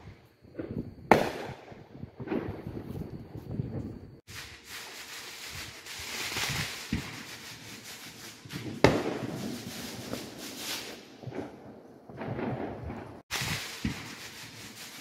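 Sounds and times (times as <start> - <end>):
fireworks hissing crackle: 0.0 - 15.0
firework sharp bang: 1.1 - 2.7, 6.2 - 7.3, 8.5 - 11.5, 12.1 - 14.6.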